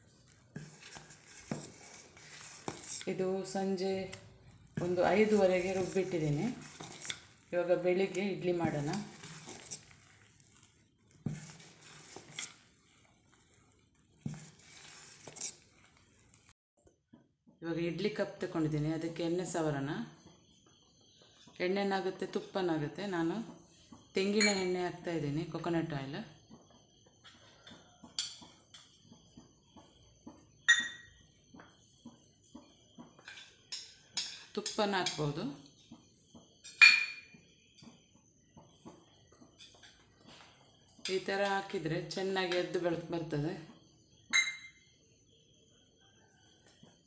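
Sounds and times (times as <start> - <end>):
ladle stirring thick batter: 0.0 - 16.6
metal cups tapping and clinking: 36.7 - 37.2, 44.3 - 44.7.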